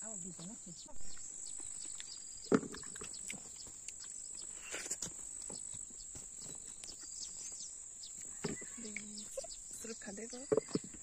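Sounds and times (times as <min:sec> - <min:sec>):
chewing and mouth smacks: 0:01.6 - 0:05.2.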